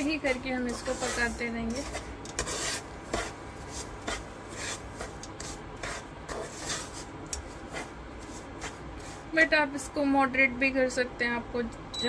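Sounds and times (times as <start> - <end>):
wooden spatula scraping a pan: 0.0 - 9.9.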